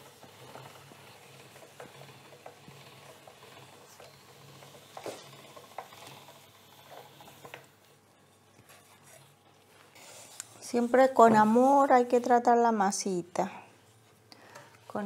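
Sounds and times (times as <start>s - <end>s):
pasta machine clicking: 0.0s - 7.9s.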